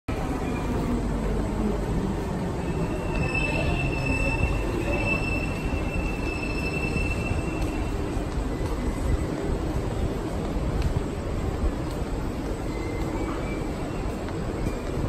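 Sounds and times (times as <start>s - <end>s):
high-pitched train whine: 0.1s - 9.4s
low rumble of train and station: 0.1s - 15.0s.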